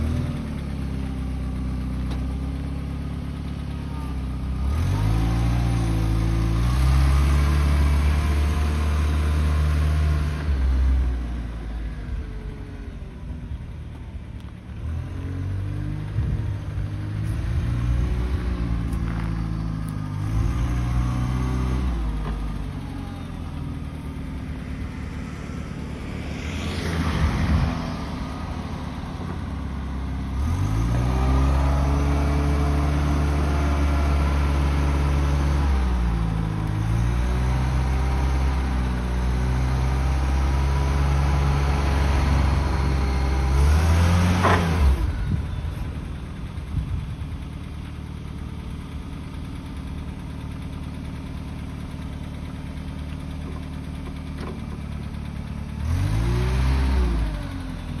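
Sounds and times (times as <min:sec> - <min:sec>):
forklift engine revving: 0:04.4 - 0:10.9, 0:14.8 - 0:47.0, 0:47.6 - 0:58.0
rush of noise: 0:23.9 - 0:29.9.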